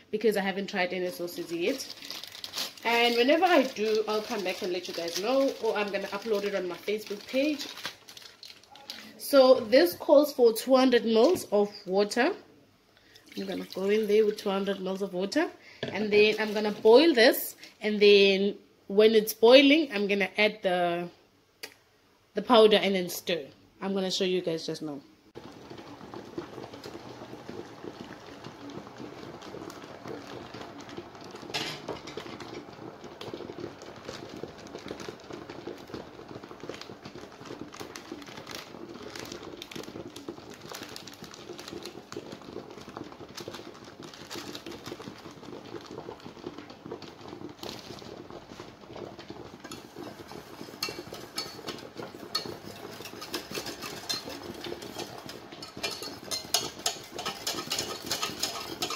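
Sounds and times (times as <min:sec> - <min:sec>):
whisk scraping and rattling in pan: 0:00.8 - 0:09.0, 0:15.8 - 0:17.4, 0:25.4 - 0:58.9
water bubbling in a saucepan: 0:00.8 - 0:09.8, 0:13.0 - 0:15.4, 0:25.3 - 0:58.9.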